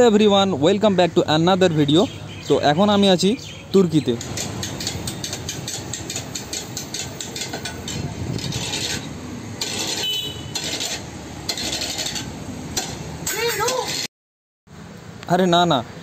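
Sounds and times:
metal paddle knocking: 4.1 - 8.6
metal paddle scraping ice cream: 4.2 - 14.1.

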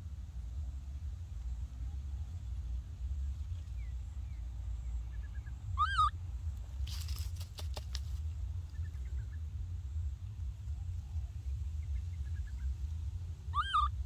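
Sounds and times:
steady low rumble: 0.0 - 14.0
high wavering animal call: 5.8 - 6.1, 13.5 - 14.0.

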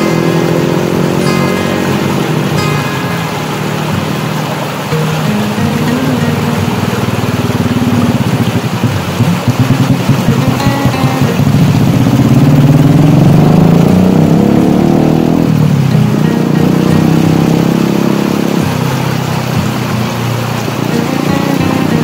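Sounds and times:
churning water: 0.0 - 22.0
motor engine running: 0.0 - 22.0.

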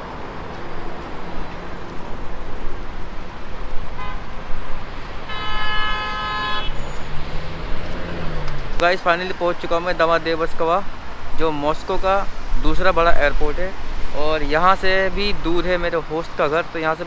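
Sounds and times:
street traffic: 0.0 - 17.0
car horn honking: 4.0 - 4.3, 5.2 - 7.0.

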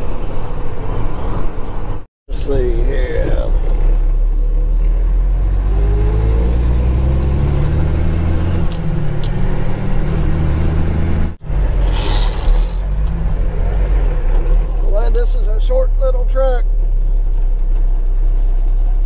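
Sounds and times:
burst of hissing: 11.8 - 13.0.

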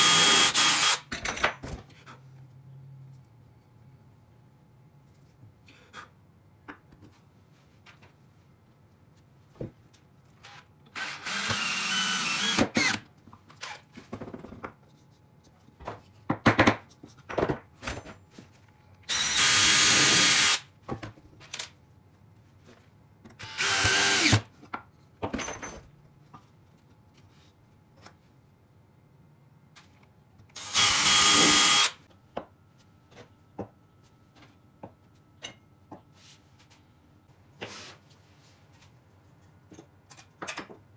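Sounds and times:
cordless drill drilling into wood: 0.0 - 1.0, 11.0 - 13.0, 19.1 - 20.6, 23.4 - 24.4, 30.6 - 32.0.

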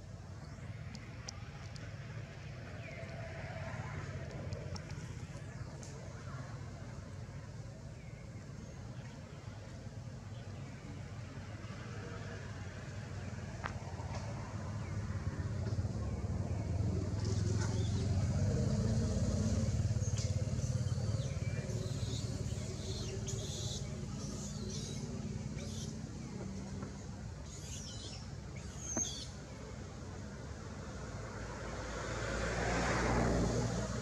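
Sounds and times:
vehicle engine humming: 10.9 - 34.0
high chirping calls: 20.0 - 26.0.

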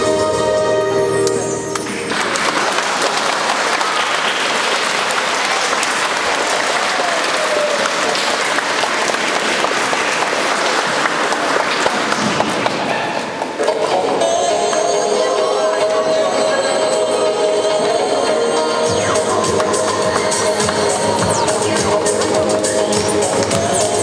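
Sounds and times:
music: 0.0 - 2.5, 13.6 - 24.0
audience applause: 1.8 - 13.3.

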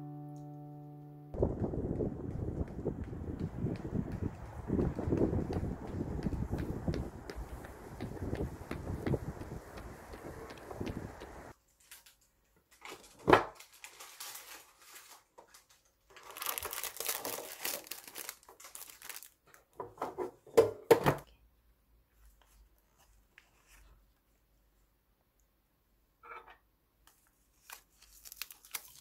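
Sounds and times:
outdoor noise: 1.4 - 11.6
packaging crinkling and rustling: 11.7 - 19.7, 27.1 - 29.0.

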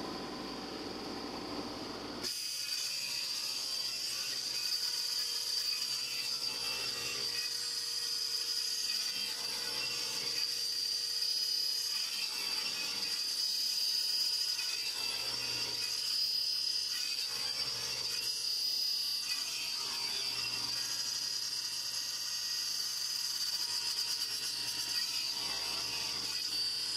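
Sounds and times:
table saw whining: 0.0 - 26.9
saw blade cutting wood: 2.2 - 26.9.

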